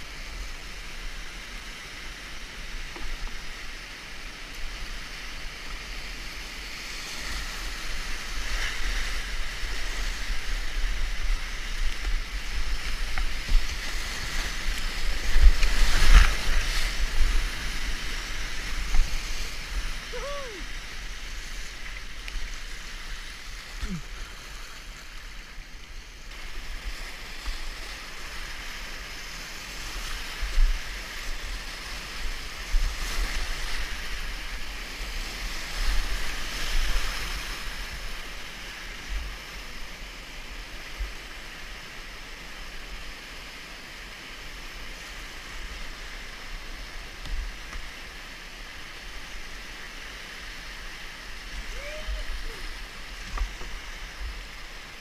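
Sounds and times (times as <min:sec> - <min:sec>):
whitewater rushing: 0:00.0 - 0:25.7, 0:44.8 - 0:55.0.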